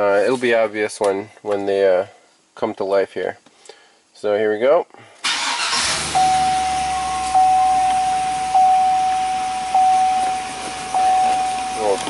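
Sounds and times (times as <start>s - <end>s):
engine idling: 5.3s - 12.0s
warning chime dinging: 6.1s - 12.0s.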